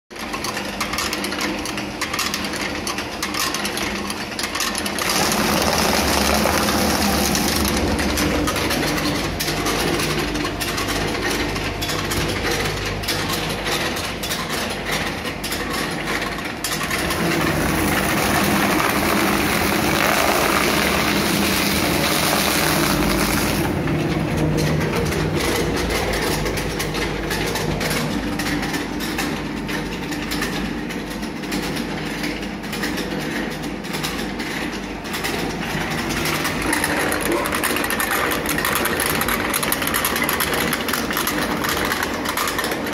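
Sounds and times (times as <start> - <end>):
shredder motors humming and clattering: 0.1 - 42.9
cardboard being shredded: 5.0 - 8.1, 17.1 - 23.8.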